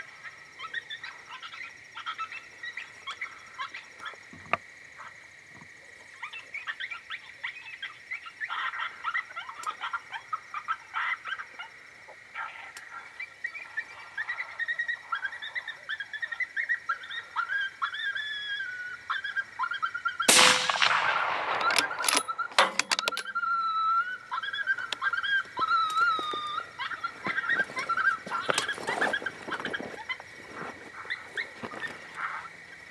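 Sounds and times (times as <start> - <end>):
coyotes yipping and howling: 0.0 - 32.9
rifle shots with echo: 20.3 - 23.3.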